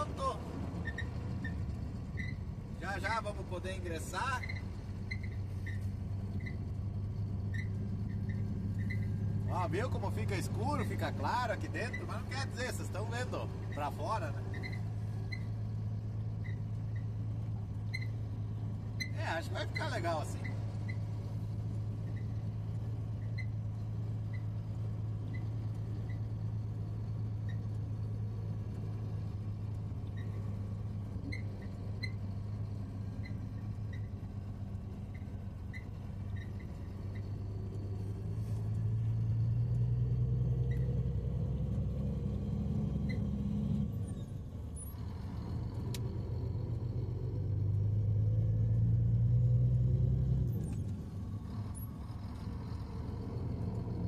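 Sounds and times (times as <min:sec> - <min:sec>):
truck diesel engine: 0:00.0 - 0:54.0
light clicks in cab: 0:45.9 - 0:46.1.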